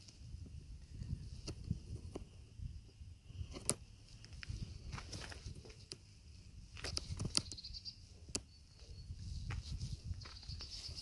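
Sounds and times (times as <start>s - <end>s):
wind on microphone: 0.0s - 11.0s
footsteps on dry grass and gravel: 4.0s - 11.0s.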